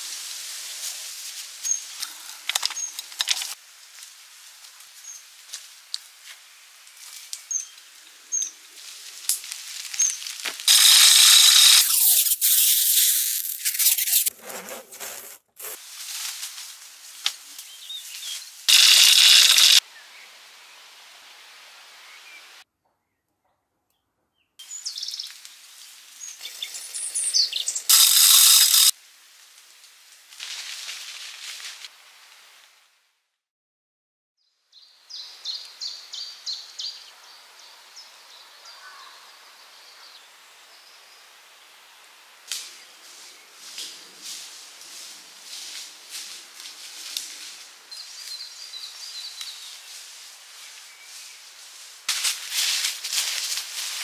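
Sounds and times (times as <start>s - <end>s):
loud scratchy noises: 10.4s - 15.8s, 18.7s - 19.8s, 27.9s - 28.9s
small birds chirping: 26.2s - 28.9s.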